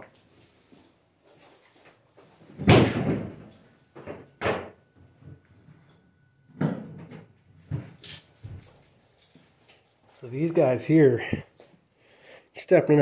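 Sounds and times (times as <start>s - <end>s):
tools knocking and clattering: 2.4s - 9.9s
loud thump: 2.6s - 3.4s.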